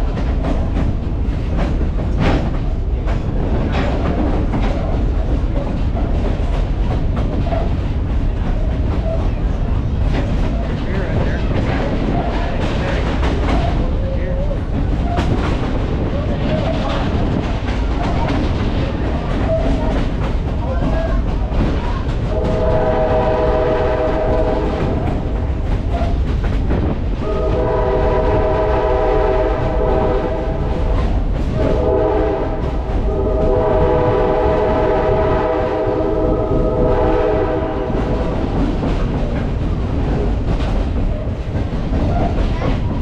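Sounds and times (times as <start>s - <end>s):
train rumbling on rails: 0.0s - 43.0s
locomotive horn blasts: 22.3s - 25.0s, 27.2s - 30.8s, 31.6s - 38.1s.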